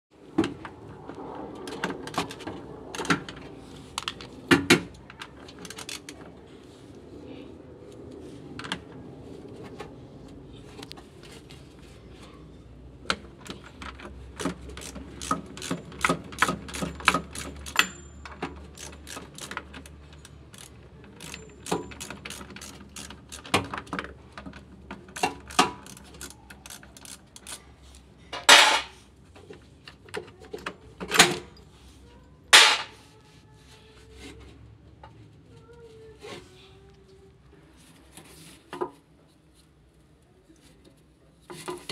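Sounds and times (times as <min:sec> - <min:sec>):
ratchet wrench clicking: 0:14.4 - 0:18.0, 0:18.6 - 0:23.6, 0:25.2 - 0:27.6.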